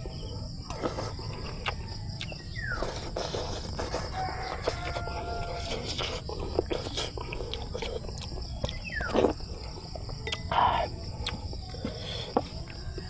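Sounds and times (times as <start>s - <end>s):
high insect drone: 0.0s - 13.0s
person chewing: 0.6s - 12.8s
rooster crowing: 3.8s - 6.0s.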